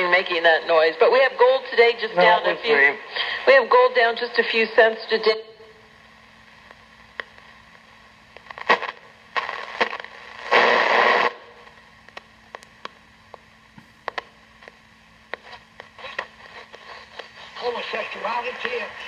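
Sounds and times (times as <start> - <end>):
faint steady hum: 0.0 - 19.0
radio crackles: 0.0 - 19.0
radio static hiss: 0.0 - 19.0
bursts of noisy radio signal: 8.6 - 11.5, 15.4 - 19.0.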